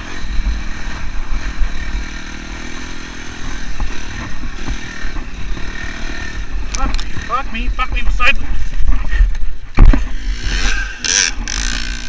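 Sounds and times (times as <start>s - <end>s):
dirt bike engine revving: 0.0s - 8.8s, 9.6s - 12.0s.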